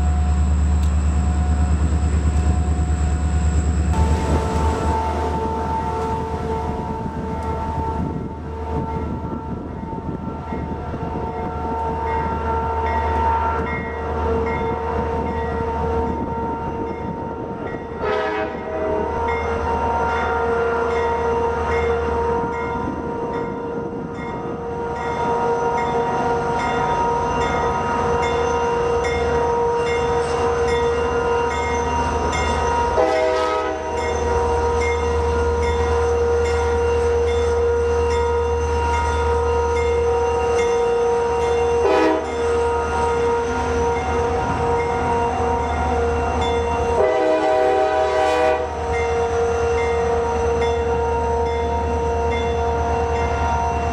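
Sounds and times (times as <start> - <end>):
locomotive air horn blasts: 4.0 - 7.0, 18.0 - 21.5, 32.9 - 34.0, 41.8 - 43.4, 46.9 - 48.9.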